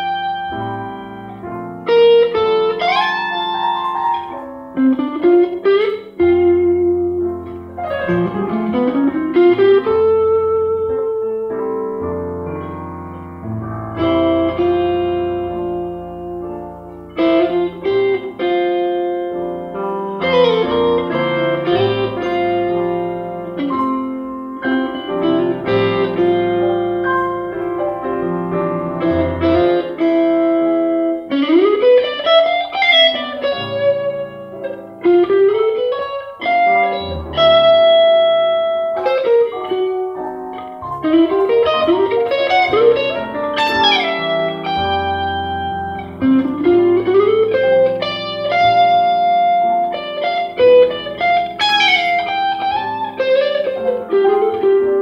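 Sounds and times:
electric guitar: 0.0s - 55.0s
grand piano: 0.0s - 55.0s.

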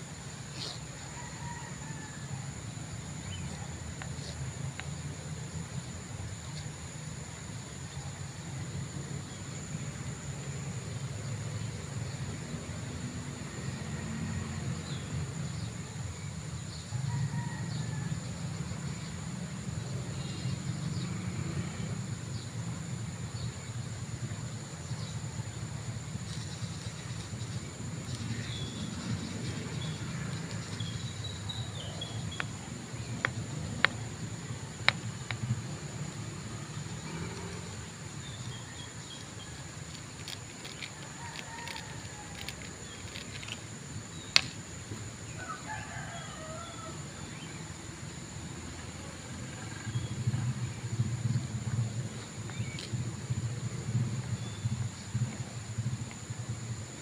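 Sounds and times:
rooster crowing: 1.0s - 2.5s, 17.0s - 18.4s, 41.0s - 42.7s, 45.3s - 47.2s.

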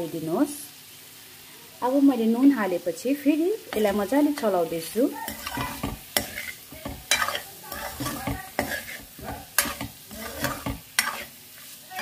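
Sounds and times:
frying sizzle: 0.0s - 12.0s
metal spoon scraping a metal pan: 5.1s - 12.0s.

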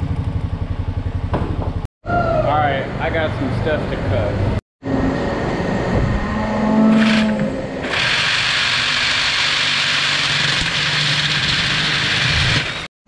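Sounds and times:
reciprocating saw motor whine: 4.8s - 12.9s.

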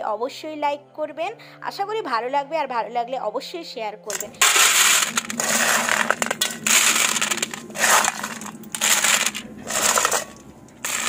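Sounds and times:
snail shells clattering on metal: 4.1s - 11.0s.

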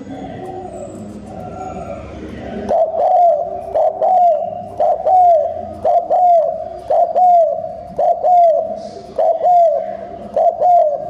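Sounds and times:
dove cooing: 0.0s - 11.0s.

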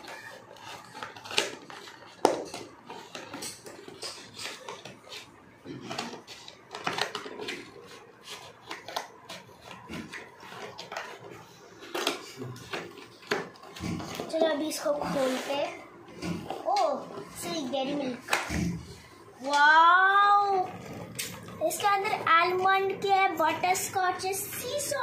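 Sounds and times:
scissors cutting cardboard: 0.0s - 5.3s, 5.9s - 12.1s.

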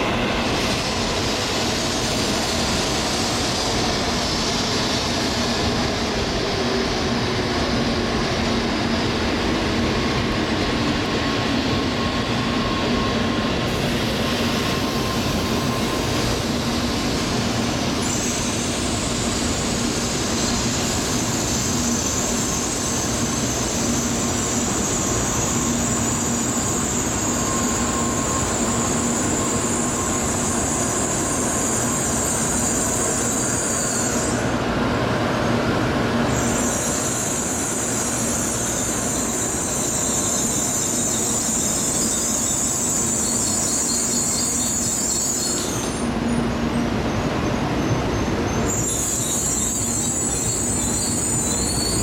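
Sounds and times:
train running past: 0.0s - 52.0s
high-pitched squeal: 36.2s - 46.1s, 48.1s - 52.0s.

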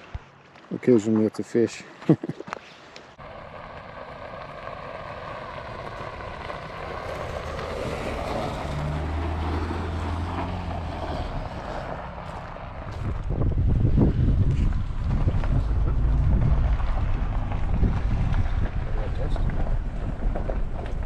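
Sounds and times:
wind buffeting microphone: 12.6s - 21.0s.

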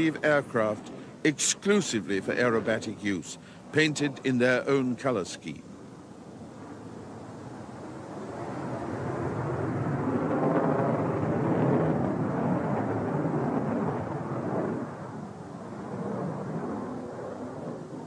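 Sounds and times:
jet fighter flying past: 5.7s - 18.0s.

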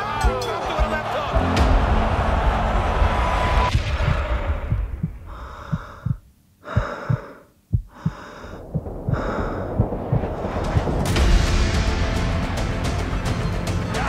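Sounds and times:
quick low thumps: 3.7s - 11.1s
man breathing hard: 5.2s - 10.2s.

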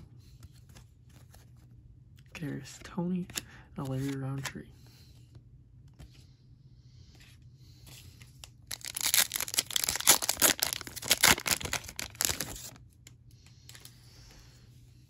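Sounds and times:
foil wrapper tearing and crinkling: 8.6s - 12.8s.

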